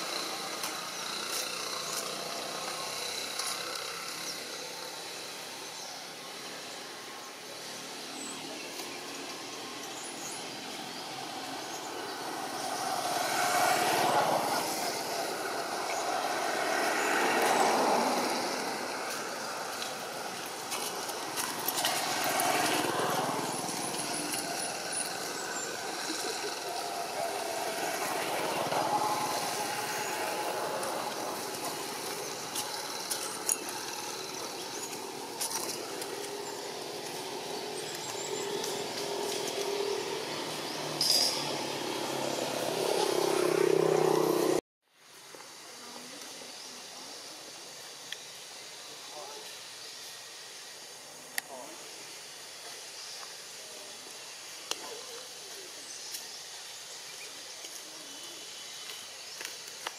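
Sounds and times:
outdoor hum and hiss: 0:00.0 - 0:59.9
vehicle passing by: 0:09.0 - 0:44.6.

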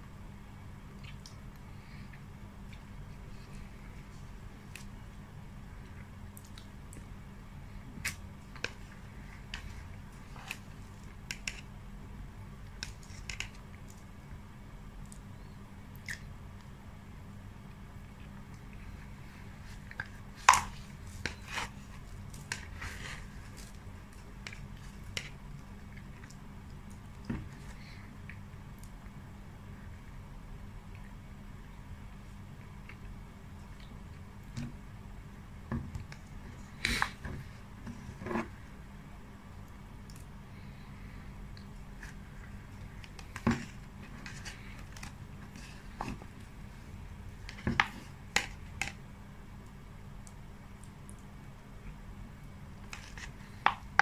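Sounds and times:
steady low hum: 0:00.0 - 0:54.0
wet eating sounds: 0:00.9 - 0:04.0.

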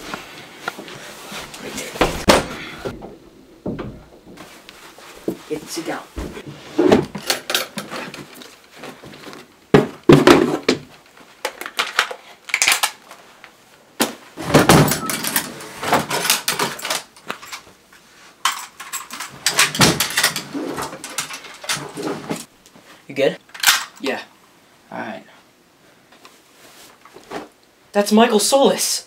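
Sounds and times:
clothes rummaged in wooden drawer: 0:18.4 - 0:22.5
rifle being handled: 0:23.5 - 0:24.0.

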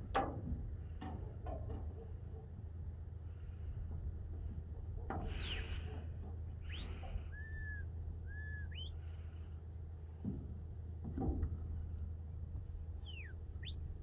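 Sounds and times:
steady low rumble: 0:02.6 - 0:14.0.

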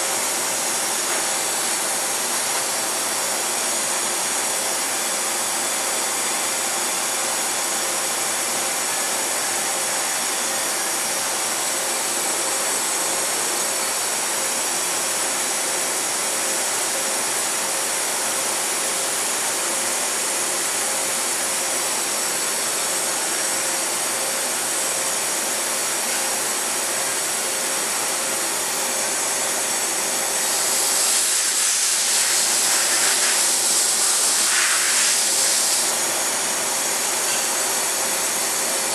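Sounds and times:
loud hiss: 0:30.6 - 0:36.0.

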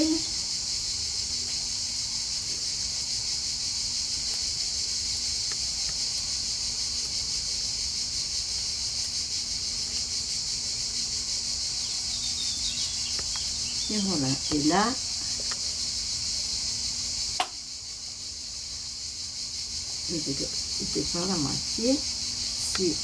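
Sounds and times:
insects trilling: 0:00.0 - 0:23.0.

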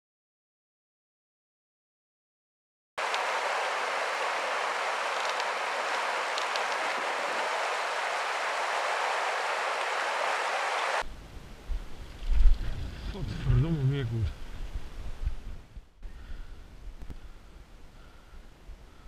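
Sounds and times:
stream rushing over stones: 0:03.0 - 0:11.0
low rumbling wind on microphone: 0:03.0 - 0:19.0.

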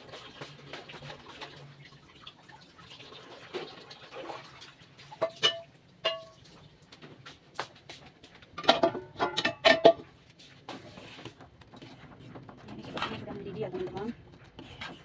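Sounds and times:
metal ladle clinking on saucepan: 0:05.2 - 0:06.4.

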